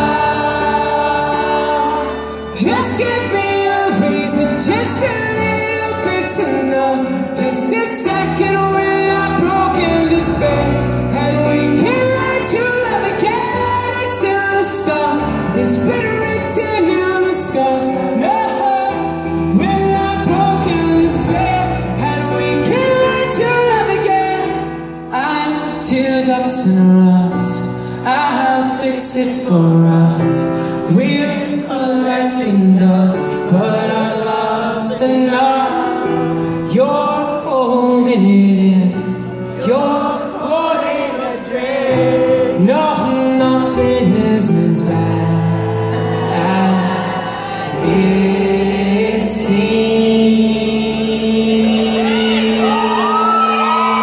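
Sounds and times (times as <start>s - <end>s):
live pop band playing: 0.0s - 54.0s
man singing into microphone: 0.0s - 54.0s.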